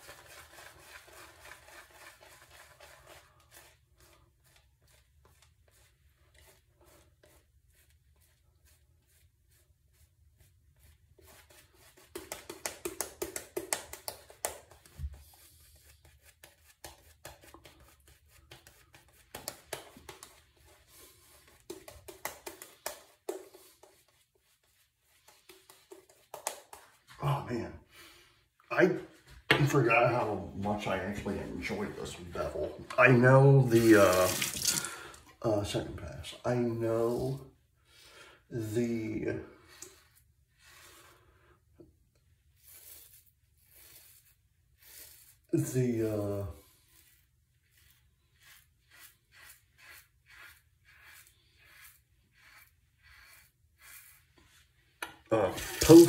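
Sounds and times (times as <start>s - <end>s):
shaving brush lathering face: 0.0s - 27.2s, 29.8s - 35.3s, 38.6s - 56.0s
razor scraping stubble: 42.6s - 56.0s.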